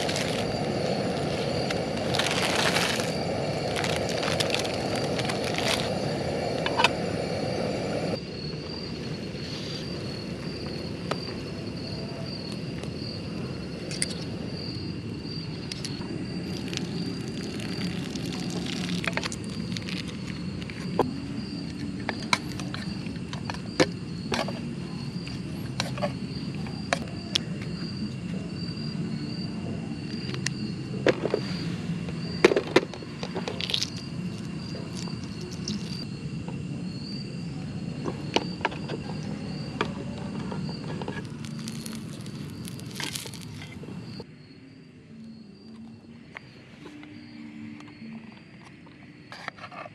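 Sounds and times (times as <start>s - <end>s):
crickets chirping: 0.0s - 49.9s.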